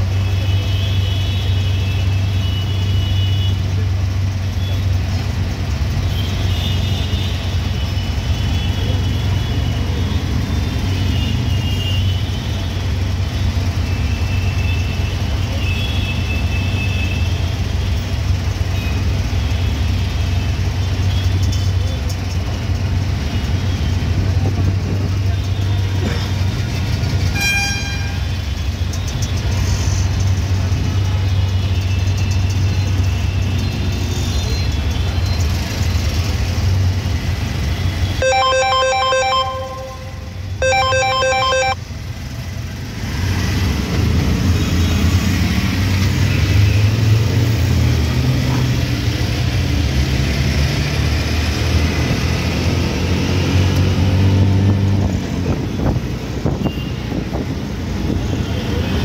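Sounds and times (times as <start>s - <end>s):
auto-rickshaw engine running: 0.0s - 59.0s
phone ringtone: 38.2s - 41.8s.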